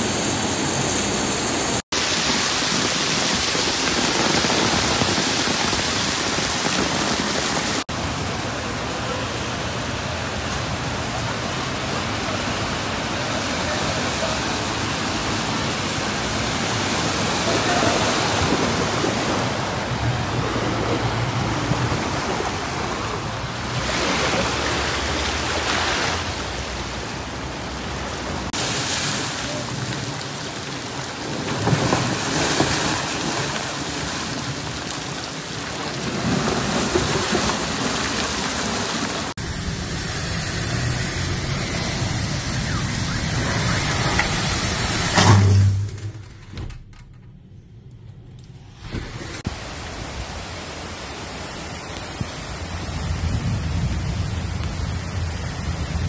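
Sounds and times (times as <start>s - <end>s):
heavy rain: 0.0s - 46.2s, 48.8s - 56.0s
running floodwater: 0.0s - 46.7s, 48.8s - 56.0s.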